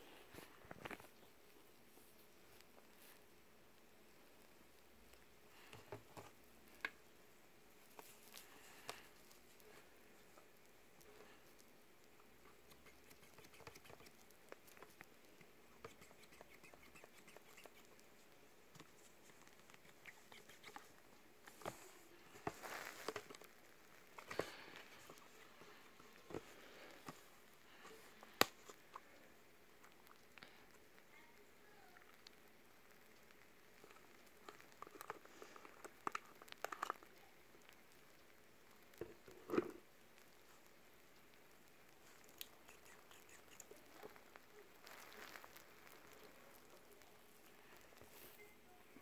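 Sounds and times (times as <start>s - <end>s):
tiny clicks and ticks: 7.9s - 21.8s, 23.1s - 48.4s
wet squirt of lotion: 12.6s - 14.2s, 15.9s - 17.9s, 19.8s - 20.9s.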